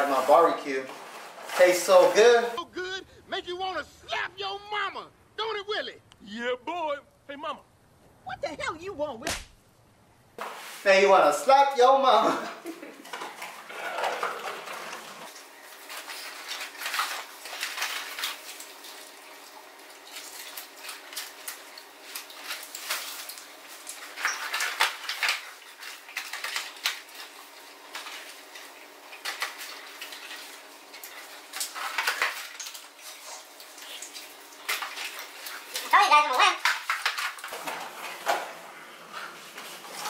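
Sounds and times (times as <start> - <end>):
people eating: 12.2 - 17.6.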